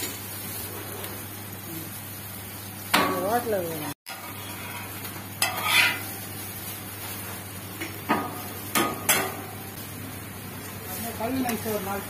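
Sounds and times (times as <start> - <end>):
metal spatula scraping griddle: 4.1 - 6.4.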